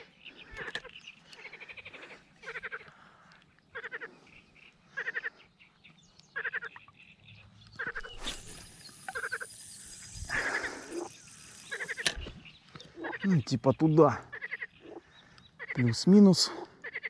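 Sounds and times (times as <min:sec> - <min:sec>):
frog croaking: 0:00.0 - 0:02.9, 0:03.7 - 0:05.3, 0:06.4 - 0:07.0, 0:07.7 - 0:13.5, 0:14.2 - 0:15.9, 0:16.6 - 0:17.0.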